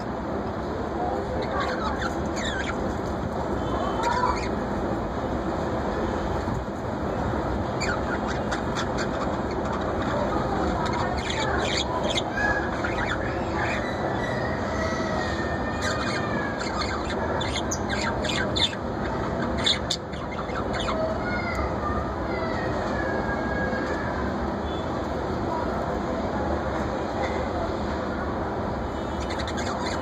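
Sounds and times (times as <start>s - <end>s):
budgerigars chirping: 1.4s - 2.9s, 4.0s - 4.6s, 7.6s - 14.7s, 15.8s - 21.1s, 29.0s - 30.0s.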